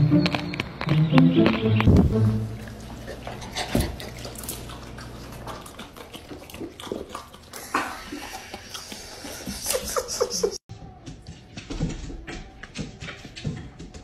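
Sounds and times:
dog licking and smacking lips: 2.6s - 9.8s.

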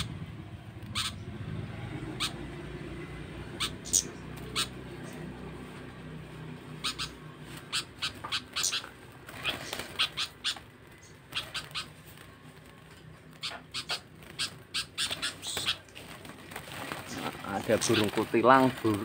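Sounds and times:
caged songbirds chirping: 0.0s - 19.0s.

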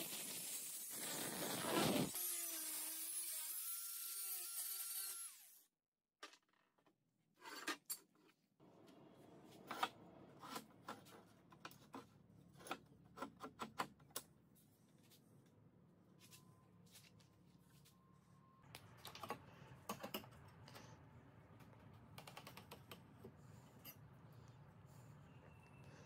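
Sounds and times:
angle grinder cutting steel: 0.0s - 5.6s.

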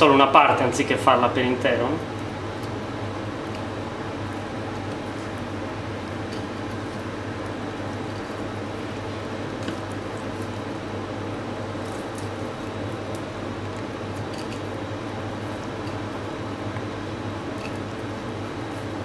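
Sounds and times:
steady mechanical hum: 0.0s - 19.0s.

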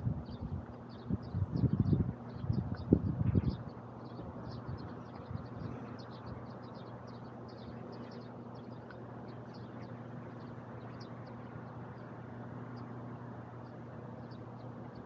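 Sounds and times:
low machine hum: 0.0s - 15.0s
small birds chirping: 0.2s - 15.0s
distant city traffic: 3.6s - 15.0s.

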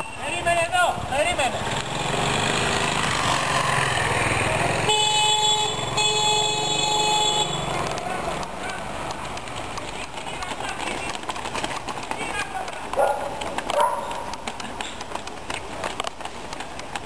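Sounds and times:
motor scooter engine running: 1.6s - 11.1s
vehicle horn honking: 4.8s - 7.8s.

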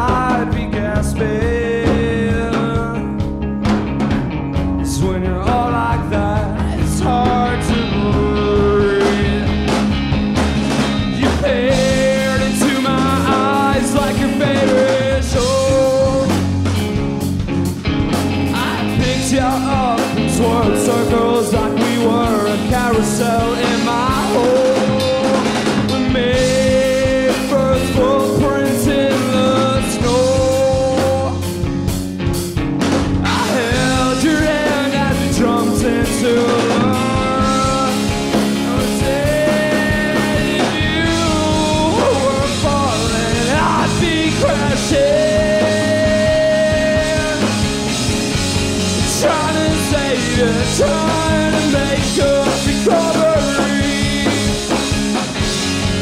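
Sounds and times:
drum kit beat: 0.0s - 56.0s
electric bass: 0.0s - 56.0s
electric guitar sliding notes: 0.0s - 56.0s.

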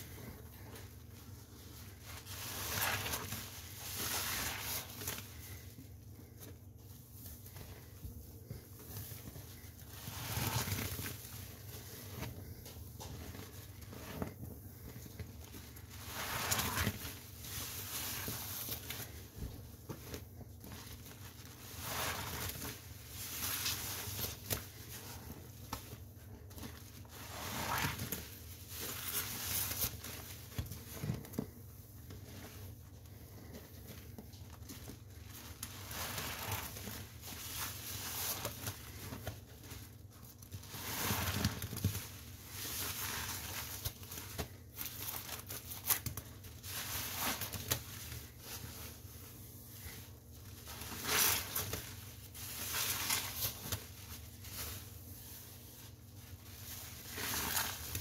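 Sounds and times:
soapy sponge squeezed: 1.6s - 5.6s, 10.0s - 11.2s, 15.8s - 19.2s, 20.7s - 25.2s, 27.0s - 28.3s, 35.3s - 39.2s, 40.6s - 41.7s, 42.4s - 43.9s, 50.6s - 54.9s, 56.7s - 58.0s.

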